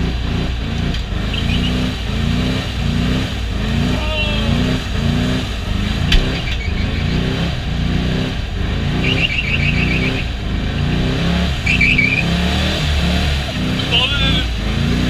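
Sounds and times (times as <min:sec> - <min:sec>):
car engine revving: 0:00.0 - 0:15.0
rapid high squeaks: 0:06.3 - 0:07.2.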